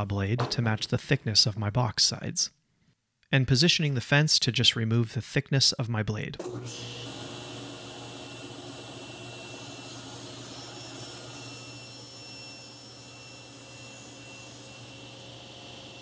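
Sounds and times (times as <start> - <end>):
table saw hum and whine: 6.4 - 16.0.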